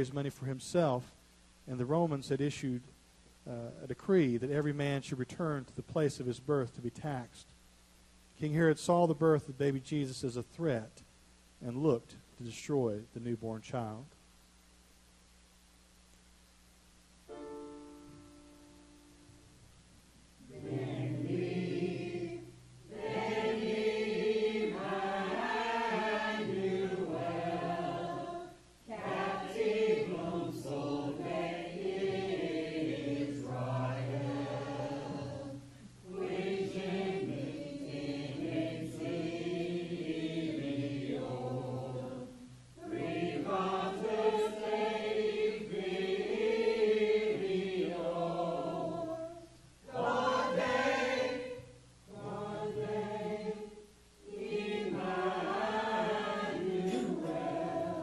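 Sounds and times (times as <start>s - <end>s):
mixed choir singing: 20.4s - 58.0s.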